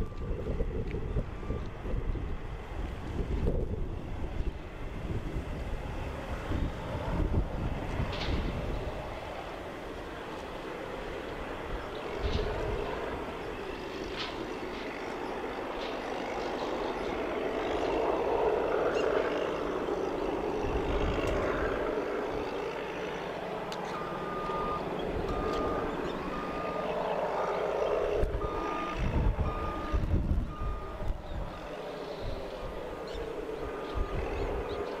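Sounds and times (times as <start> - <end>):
reversing alarm beeping: 0.0 - 2.0, 23.7 - 32.9, 33.7 - 34.7
engines rumbling: 0.0 - 35.0.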